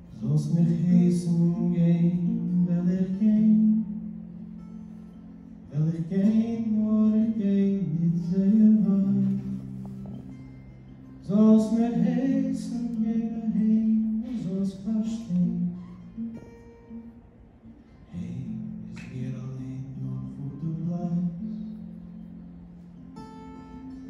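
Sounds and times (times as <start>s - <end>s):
man singing: 0.0s - 4.2s, 5.7s - 9.8s, 11.2s - 15.9s, 18.1s - 21.8s
strummed acoustic guitar: 0.0s - 24.0s.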